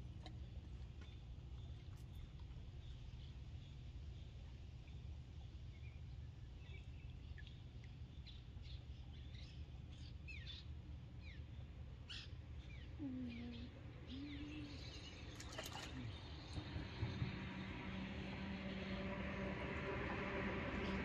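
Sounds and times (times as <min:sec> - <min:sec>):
low steady background hum: 0:00.0 - 0:21.0
birds chirping: 0:02.6 - 0:19.2
low drawn-out tones: 0:15.9 - 0:21.0.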